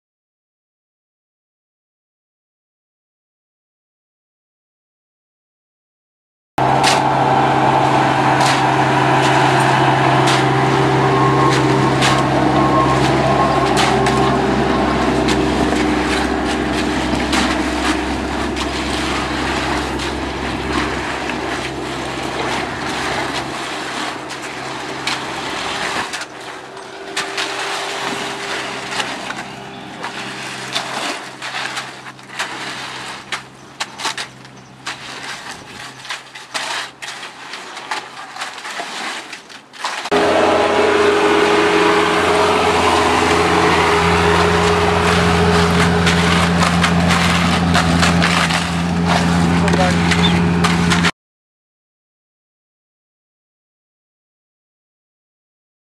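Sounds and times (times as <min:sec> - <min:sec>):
heavy engine running: 0:06.6 - 0:35.3, 0:40.1 - 0:51.1
rakes scraping through wet concrete: 0:06.6 - 0:51.1.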